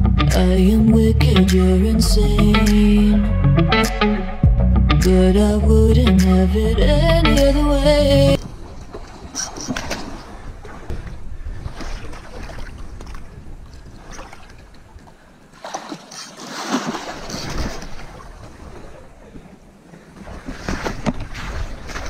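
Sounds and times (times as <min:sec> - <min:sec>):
wind on microphone: 0:08.3 - 0:15.0
fish splashing in water: 0:15.6 - 0:18.9.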